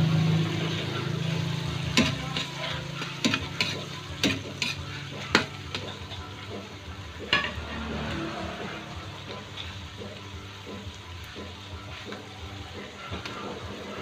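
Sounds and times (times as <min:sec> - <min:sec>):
food sizzling in a wok: 0:00.0 - 0:14.0
ladle scraping a wok: 0:00.4 - 0:10.7.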